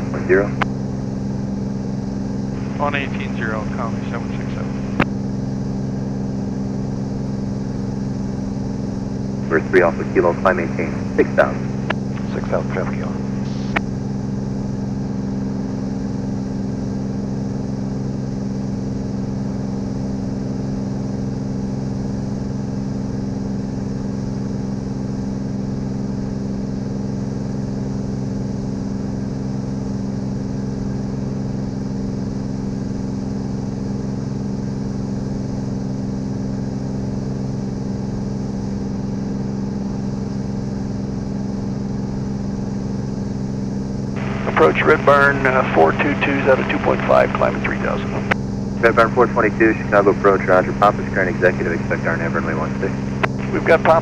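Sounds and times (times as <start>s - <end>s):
propeller aircraft engine droning: 0.0s - 20.7s, 37.7s - 54.0s.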